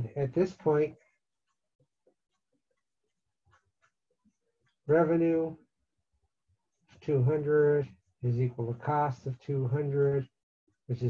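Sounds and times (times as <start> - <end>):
man speaking: 0.0 - 0.9, 4.9 - 5.6, 7.0 - 10.3.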